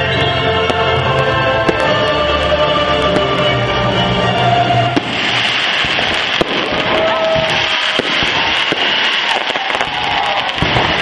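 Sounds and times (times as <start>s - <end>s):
fireworks crackling: 0.0s - 2.2s, 4.7s - 11.0s
firework shell bangs: 5.0s - 11.0s.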